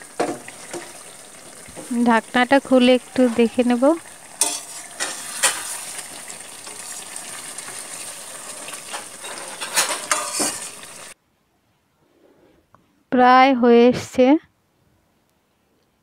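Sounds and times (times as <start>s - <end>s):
curry sizzling: 0.0s - 11.2s
metal spatula scraping a pan: 4.4s - 11.2s.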